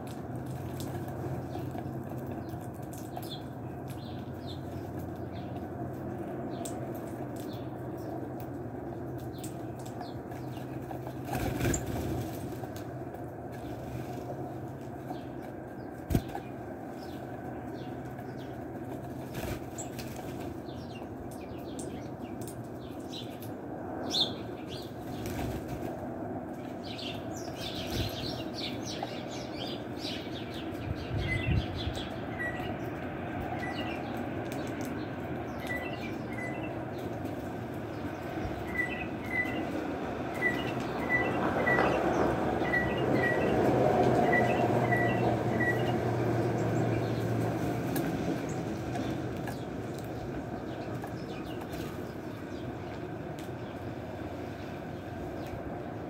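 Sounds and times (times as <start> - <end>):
bird wing flutters: 11.2 - 12.7
bird chirping: 26.9 - 34.8, 35.5 - 37.1, 38.0 - 47.2.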